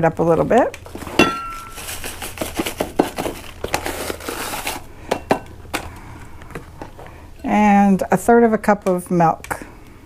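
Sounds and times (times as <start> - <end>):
packaging crinkling: 0.8 - 5.1.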